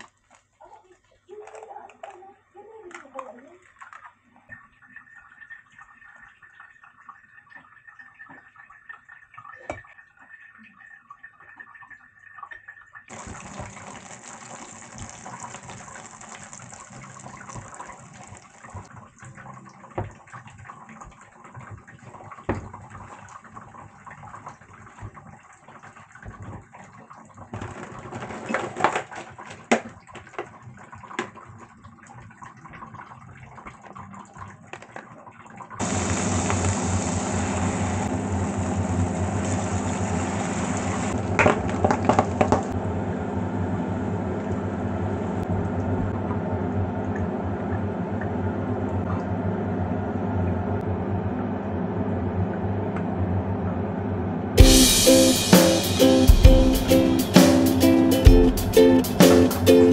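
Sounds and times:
pot of water simmering: 0.0 - 54.1
ham sizzling in frying pan: 13.1 - 18.9, 35.8 - 42.8.

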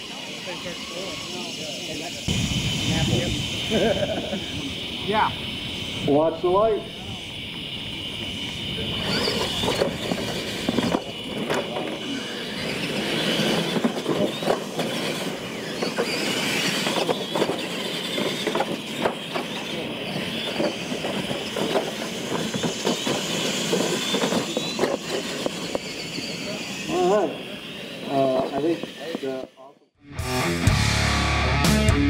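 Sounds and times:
electric motors whining: 0.0 - 29.7
toy trucks knocking and clattering: 8.4 - 27.0.

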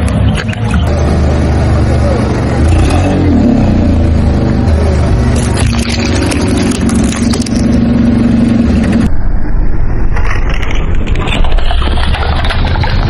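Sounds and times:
car engine running: 0.0 - 9.1.

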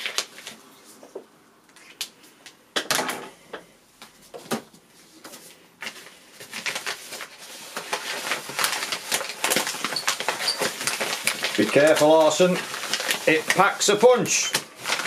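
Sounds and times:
padded envelope crinkling: 0.0 - 1.0, 5.8 - 15.0.

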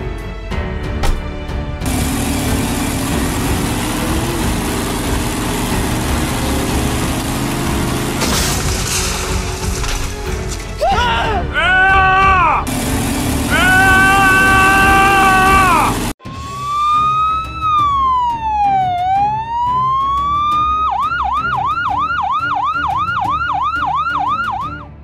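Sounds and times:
pitched drone over hiss: 12.7 - 16.2
emergency vehicle siren: 13.4 - 25.0.

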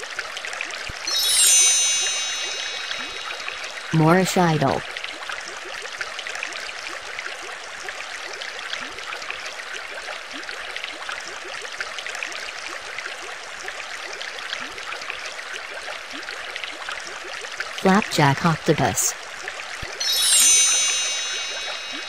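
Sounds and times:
water bubbling: 0.9 - 5.9.

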